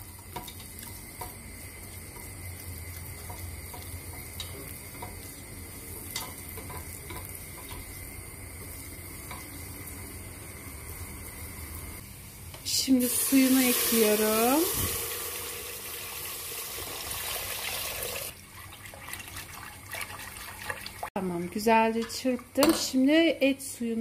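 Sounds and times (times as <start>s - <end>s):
low sizzle: 0.0s - 24.0s
whisk stirring paste in a pot: 18.5s - 21.1s.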